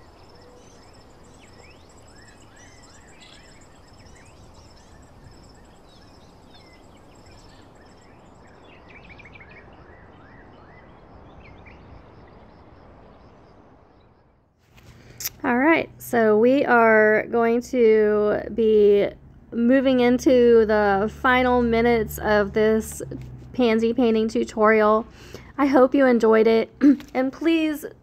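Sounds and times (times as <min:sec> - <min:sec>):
insects trilling: 0:00.0 - 0:13.7
birds chirping: 0:00.0 - 0:14.4.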